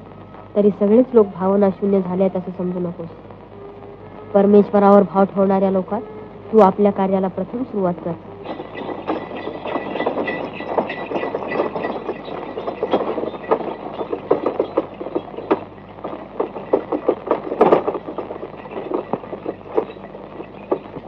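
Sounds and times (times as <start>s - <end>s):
wooden cart rattling: 8.4s - 21.0s.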